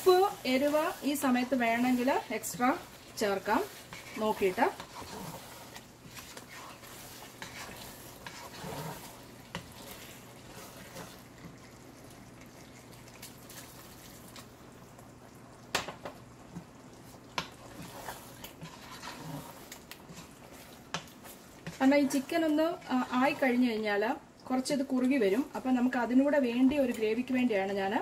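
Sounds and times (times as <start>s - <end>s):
spatula scraping curry in pot: 0.0s - 11.6s, 17.4s - 23.8s.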